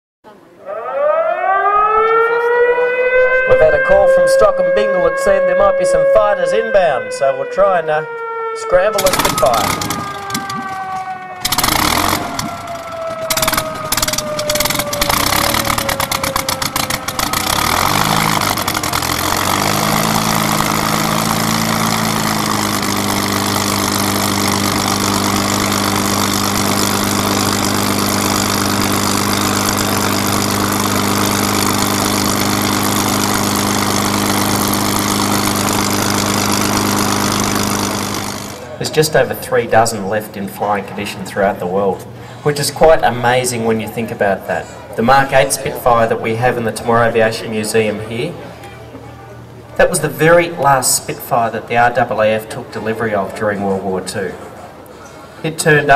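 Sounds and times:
whine falling in pitch: 0.6 - 38.8
aircraft engine starting and idling: 0.7 - 55.9.

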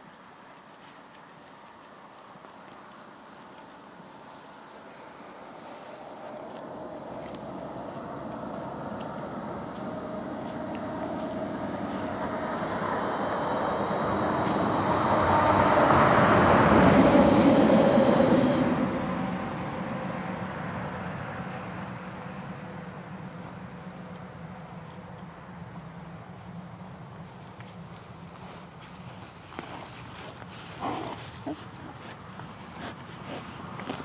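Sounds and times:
vehicle passing by: 3.3 - 34.0.

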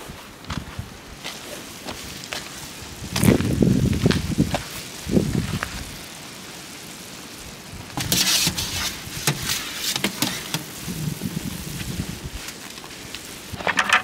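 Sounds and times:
sap boiling with rushing hiss: 0.0 - 14.0
metal skimmer scraping pan: 8.0 - 10.7.

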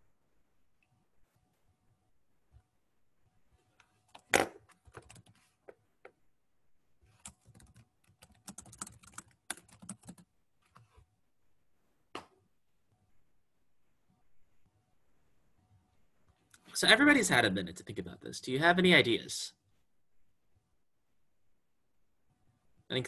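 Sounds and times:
typing on computer keyboard: 4.2 - 5.4, 7.1 - 10.9.

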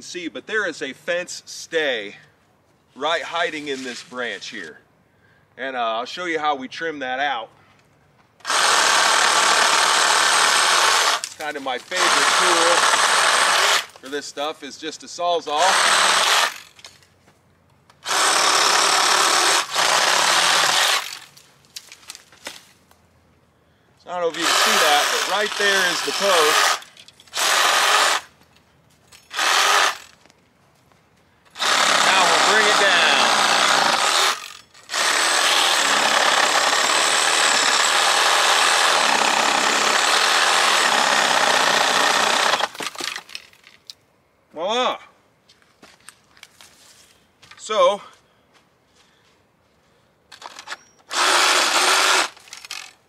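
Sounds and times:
reciprocating saw cutting branch: 24.4 - 28.3, 29.3 - 30.1, 31.6 - 36.1.

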